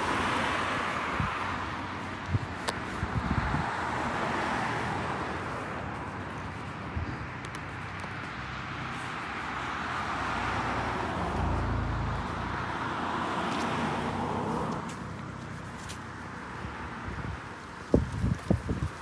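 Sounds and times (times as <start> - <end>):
passing car tyre noise: 0.0 - 19.0.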